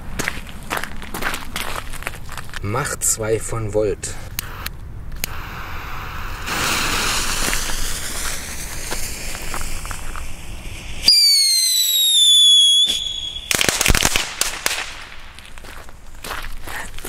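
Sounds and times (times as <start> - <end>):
fuse sparking and hissing: 4.4 - 15.3
firework cracks: 4.4 - 16.0
firework whistle: 5.2 - 15.0.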